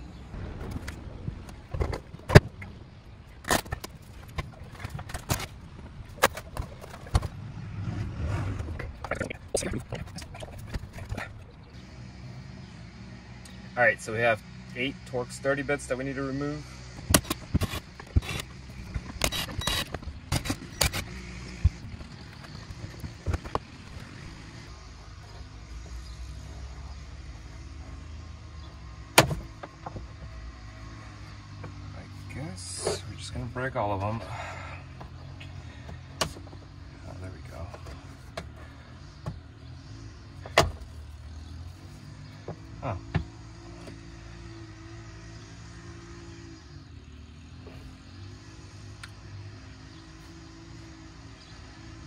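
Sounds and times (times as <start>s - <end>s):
low rumble: 0.0s - 11.8s
impact driver sharp clicks: 17.0s - 21.8s.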